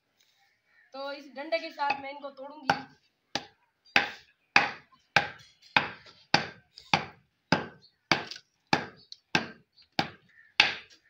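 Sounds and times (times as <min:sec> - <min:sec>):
wooden stick pounding clay: 0:02.7 - 0:11.0.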